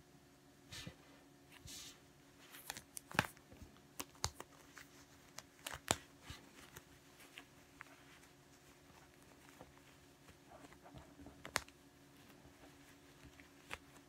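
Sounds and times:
fabric rustling: 4.6s - 14.0s.

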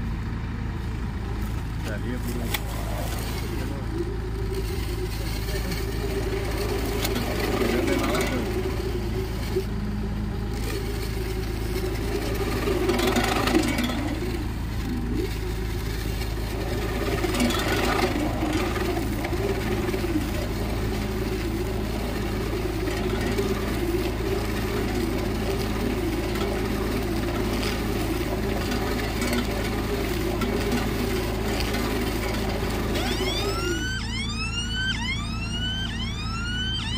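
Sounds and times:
baler motor humming: 0.0s - 36.9s
whistling glides: 2.6s - 36.9s.

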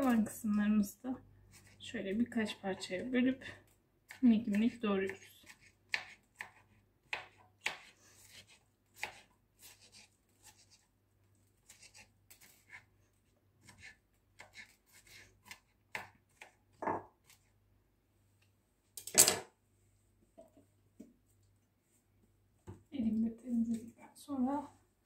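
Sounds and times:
knife chopping on cutting board: 5.4s - 10.6s.

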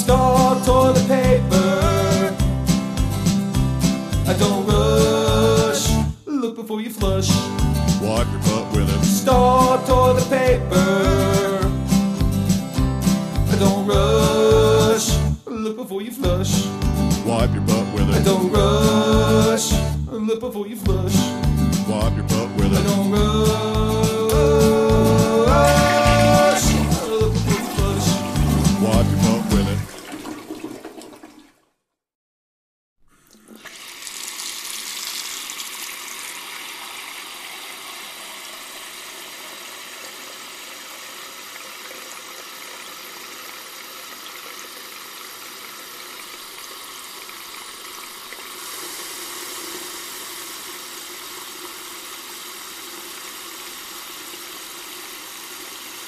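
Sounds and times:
song: 0.0s - 6.2s, 7.0s - 20.0s, 20.8s - 29.9s
water running: 22.8s - 31.7s, 33.1s - 56.0s
toilet flushing: 24.2s - 31.8s, 33.1s - 56.0s.

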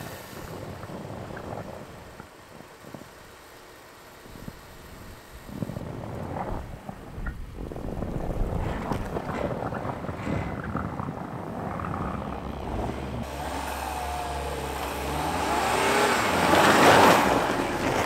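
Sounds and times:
tyres churning through snow: 0.0s - 18.0s
car engines revving: 9.2s - 18.0s.

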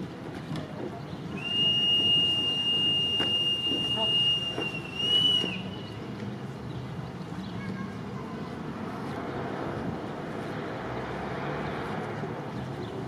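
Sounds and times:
whistle blowing high note: 1.4s - 5.8s.

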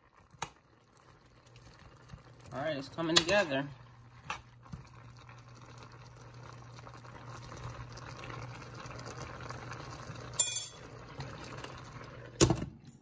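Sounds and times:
broth simmering: 0.0s - 12.4s
metallic clink: 10.4s - 10.8s.

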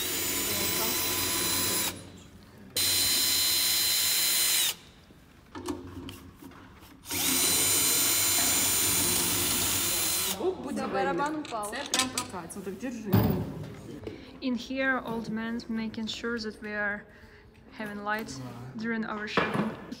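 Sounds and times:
cordless drill whining: 0.0s - 2.0s, 2.8s - 4.8s, 7.0s - 10.4s.

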